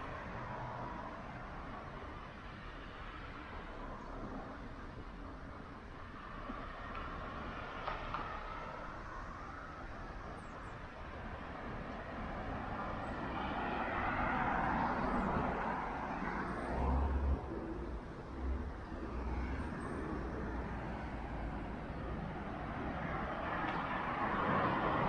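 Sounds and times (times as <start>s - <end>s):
road vehicle passing: 11.2s - 25.0s.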